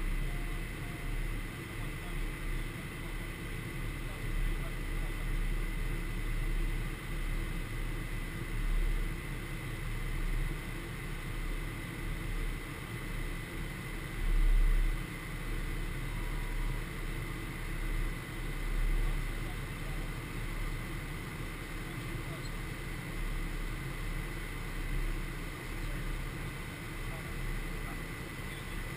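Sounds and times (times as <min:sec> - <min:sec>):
airflow rushing over cockpit: 0:00.0 - 0:28.9
jet engines humming: 0:00.0 - 0:28.9
thin steady whine: 0:00.0 - 0:28.9.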